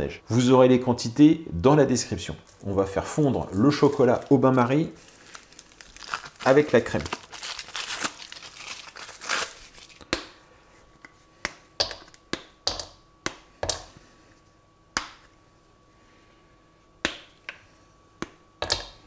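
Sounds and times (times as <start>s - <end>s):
foil wrapper crinkling: 2.5s - 10.0s
chocolate squares snapping: 11.4s - 13.9s, 14.9s - 15.3s, 17.0s - 17.6s.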